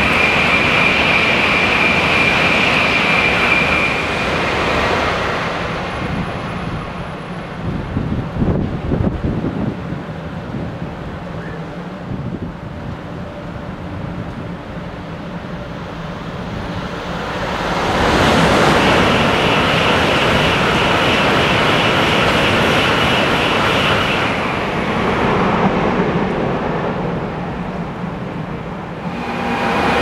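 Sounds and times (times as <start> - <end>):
bullet train passing at speed: 0.0 - 30.0
high whine: 28.8 - 30.0.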